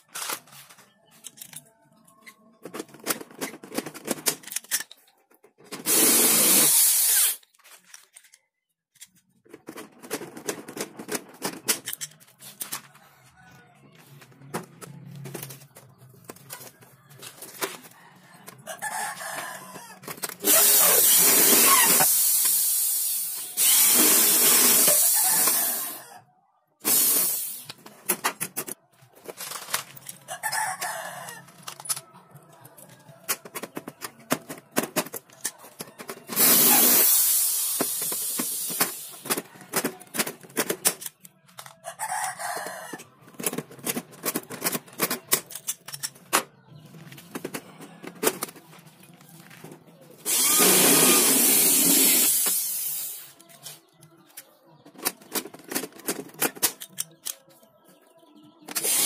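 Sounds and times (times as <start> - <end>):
metal parts being handled: 0.0 - 5.9, 7.2 - 13.0, 27.4 - 30.8, 31.4 - 37.2, 43.3 - 51.7, 52.3 - 57.5
rooster crowing: 17.9 - 20.0, 30.3 - 31.5, 41.8 - 43.1
electric drill boring into metal: 20.4 - 26.0, 50.3 - 53.2, 58.8 - 59.0
pop-rivet tool clicks and snaps: 56.7 - 57.4.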